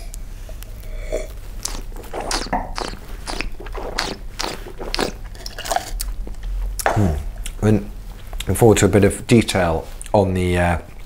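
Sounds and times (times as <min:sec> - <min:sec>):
person slurping wine: 0:00.8 - 0:06.1.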